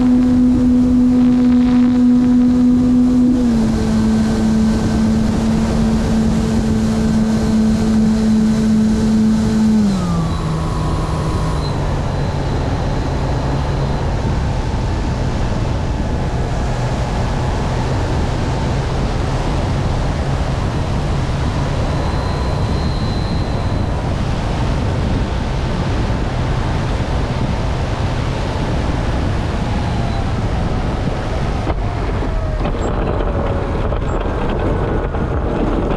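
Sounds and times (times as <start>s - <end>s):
wind rushing over microphone: 0.0s - 35.9s.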